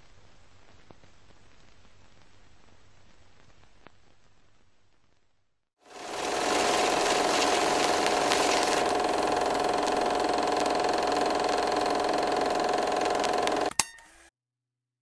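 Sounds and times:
small machine clattering: 0:06.0 - 0:13.8.

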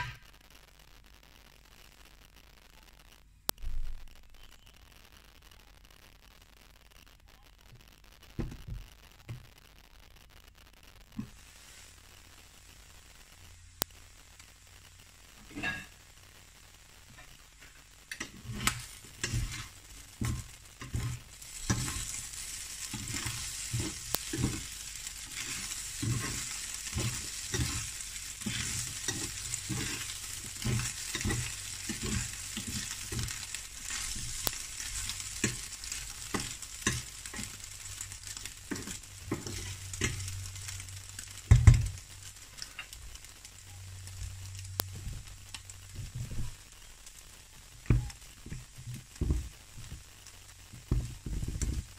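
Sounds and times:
food sizzling in a frying pan: 0:00.0 - 0:51.9
spatula scraping and knocking pan: 0:15.5 - 0:15.9, 0:18.1 - 0:40.4, 0:47.9 - 0:50.0.

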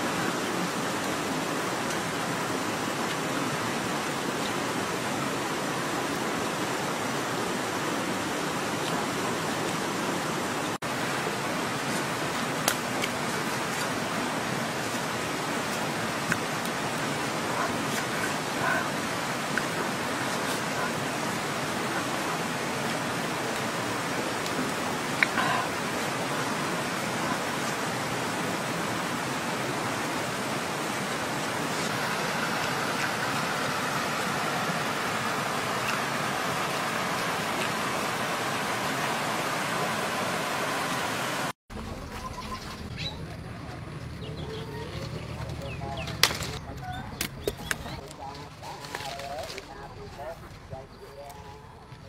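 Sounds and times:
stream water rushing: 0:00.0 - 0:42.8.

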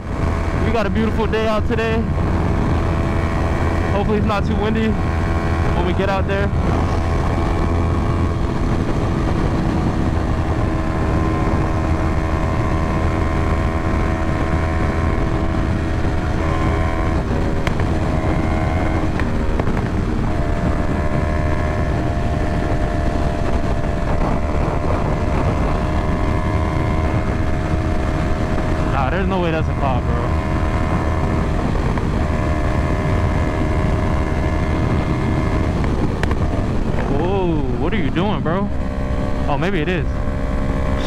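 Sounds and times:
motorcycle engine cruising: 0:00.0 - 0:41.0
wind rushing over microphone: 0:00.0 - 0:41.0.

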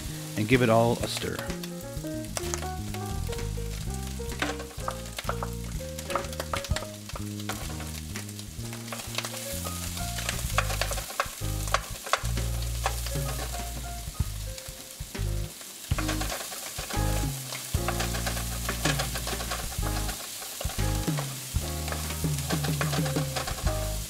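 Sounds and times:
background music low notes: 0:00.0 - 0:24.0
meat sizzling in frying pan: 0:00.0 - 0:24.0
wooden spoon scraping pan: 0:08.8 - 0:13.9, 0:15.9 - 0:24.0.

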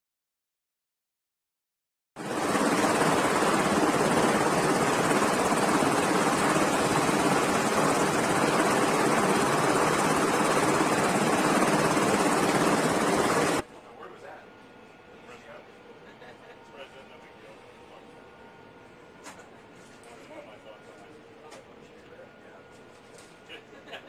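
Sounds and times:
helicopter rotors running: 0:02.2 - 0:13.6.

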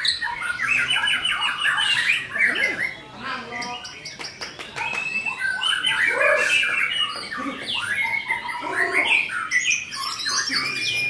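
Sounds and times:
bird singing varied whistles: 0:04.8 - 0:11.0.

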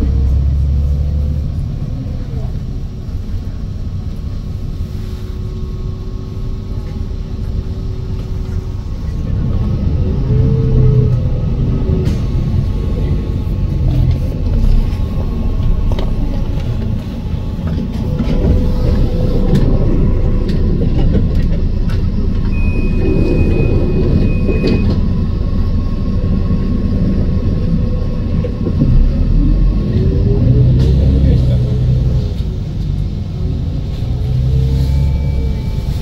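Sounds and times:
bus interior rumble: 0:00.0 - 0:36.0
rattles and clicks: 0:13.8 - 0:25.1
high steady beep: 0:22.5 - 0:25.0, 0:34.8 - 0:36.0.

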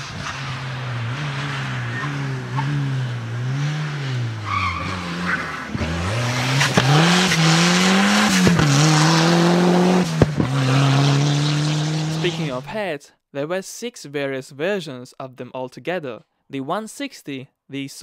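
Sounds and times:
exhaust pops and backfires: 0:00.0 - 0:12.7
rally car engine revving: 0:00.0 - 0:12.7.

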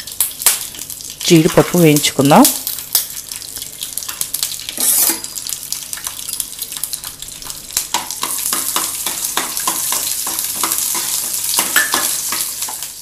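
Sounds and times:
nuts sizzling in oil: 0:00.0 - 0:13.0
spatula scraping a pan: 0:04.8 - 0:05.3.

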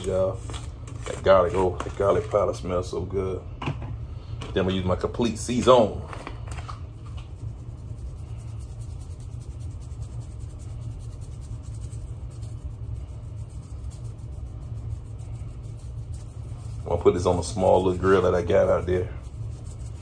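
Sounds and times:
steady low rumble: 0:00.0 - 0:20.0
spice shaker patter: 0:04.5 - 0:20.0.

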